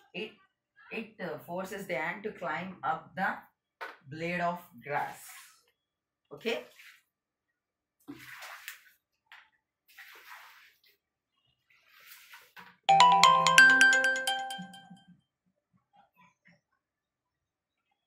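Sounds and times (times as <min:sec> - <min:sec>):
bright ringing jingle: 0:12.9 - 0:14.9.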